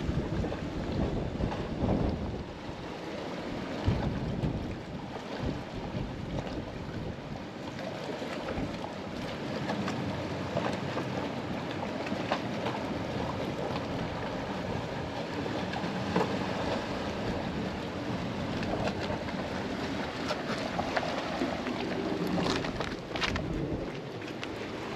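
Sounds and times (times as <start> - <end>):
wind buffeting microphone: 0.0 - 7.4, 16.6 - 24.9.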